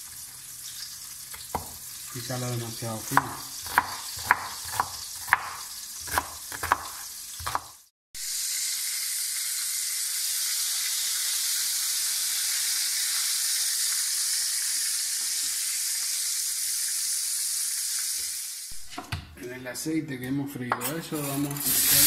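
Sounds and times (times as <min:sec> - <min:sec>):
food sizzling in oil: 0:00.0 - 0:18.9, 0:21.2 - 0:22.0
knife chopping on wooden board: 0:01.3 - 0:01.8, 0:03.1 - 0:07.8.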